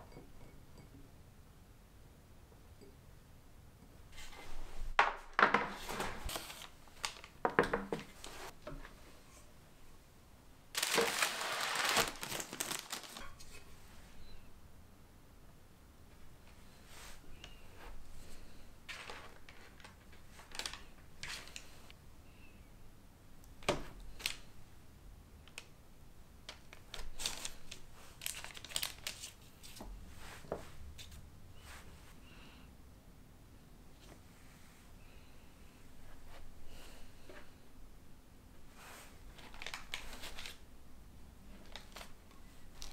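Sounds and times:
parchment paper crinkling: 0:05.9 - 0:07.5, 0:10.8 - 0:13.6, 0:18.9 - 0:21.9, 0:26.5 - 0:29.9, 0:39.3 - 0:40.6, 0:41.5 - 0:42.9.

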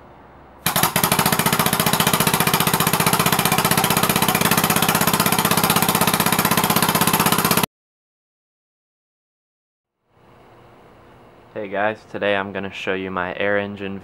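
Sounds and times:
air-powered engine chuffing: 0:00.6 - 0:07.7.

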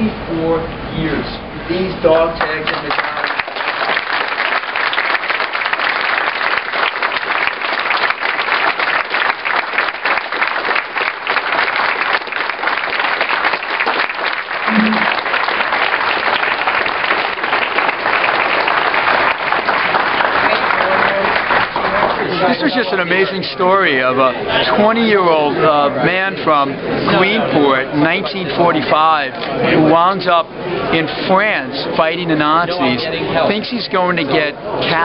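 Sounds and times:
audience applauding: 0:02.4 - 0:23.2.

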